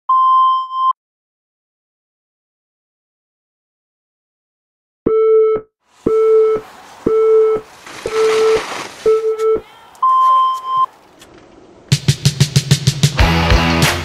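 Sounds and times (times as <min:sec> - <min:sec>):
countdown beeps: 0:00.1 - 0:00.9, 0:05.1 - 0:10.9
long high start beep: 0:05.1 - 0:10.9.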